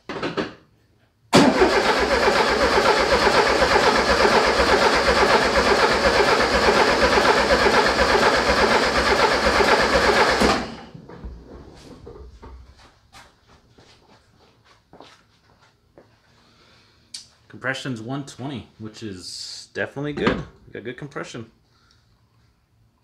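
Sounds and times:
car starter cranking: 1.4 - 11.1.

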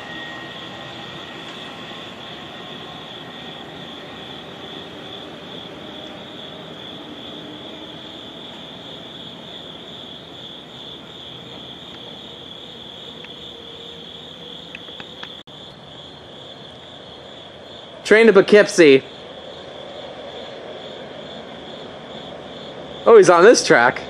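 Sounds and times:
crickets chirring: 0.0 - 24.0
faint clicks: 14.7 - 15.4.

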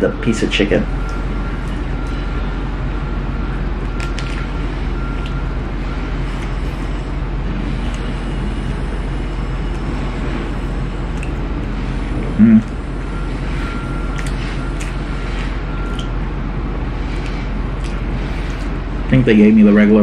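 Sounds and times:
machine hum and hiss: 0.0 - 20.0
crunchy food being chewed: 3.5 - 18.9.

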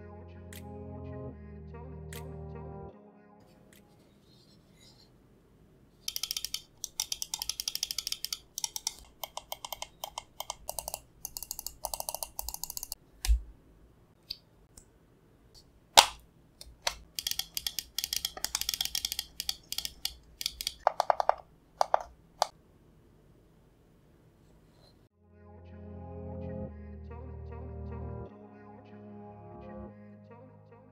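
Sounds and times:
mouse clicking: 6.0 - 13.4, 16.0 - 22.6.

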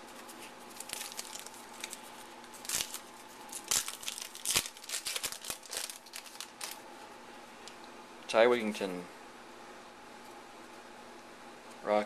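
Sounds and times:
foil wrapper tearing and crinkling: 0.1 - 6.8.

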